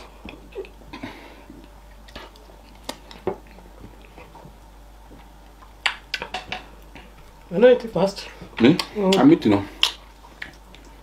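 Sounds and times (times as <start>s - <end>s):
chewing: 0.0s - 7.4s, 8.4s - 11.0s
sharp mouth clicks and smacks: 5.5s - 7.1s, 9.8s - 11.0s.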